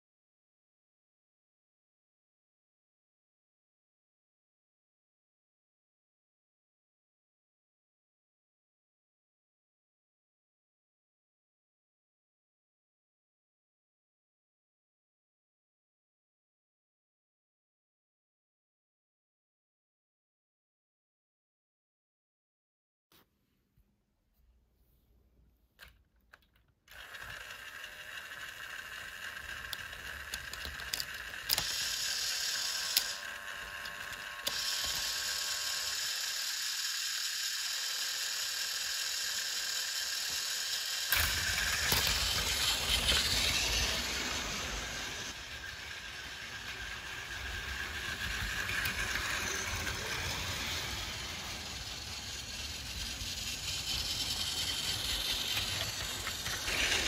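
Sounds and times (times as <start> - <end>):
toy train motor whirring: 25.8 - 57.0
toy train wheels rumbling on track: 26.9 - 57.0.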